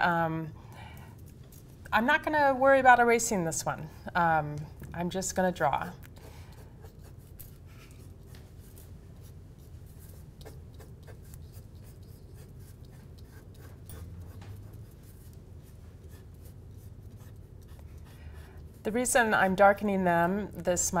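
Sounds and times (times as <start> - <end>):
faint low hum: 0.0 - 21.0
pencil scratching on paper: 6.2 - 19.4.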